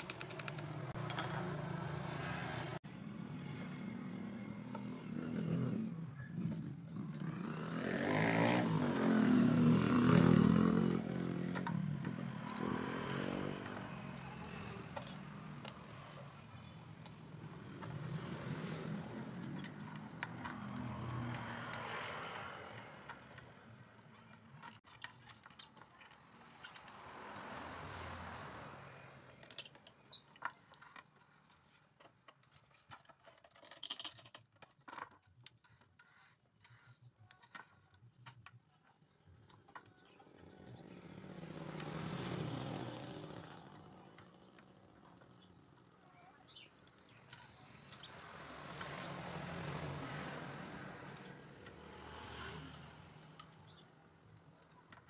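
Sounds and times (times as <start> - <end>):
bamboo clicks and taps: 0.0 - 1.4
vehicles passing: 0.0 - 32.5, 38.2 - 55.0.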